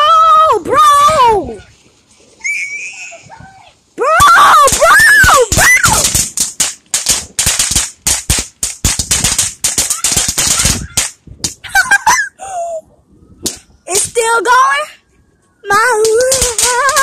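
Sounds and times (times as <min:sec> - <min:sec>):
firecrackers banging: 0:04.1 - 0:12.2, 0:13.4 - 0:14.4, 0:15.8 - 0:17.0.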